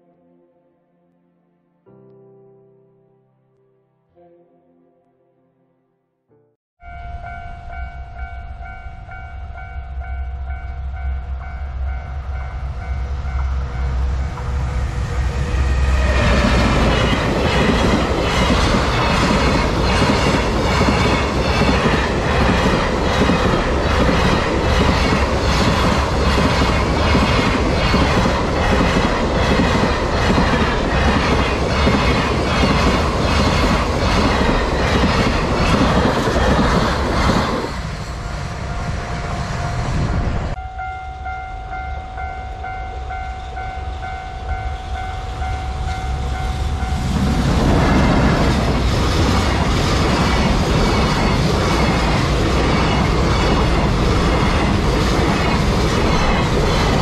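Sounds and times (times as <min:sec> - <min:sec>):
level crossing warning bell: 0:06.8 - 0:14.4, 0:38.2 - 0:47.2
freight train rumble: 0:06.9 - 0:57.0.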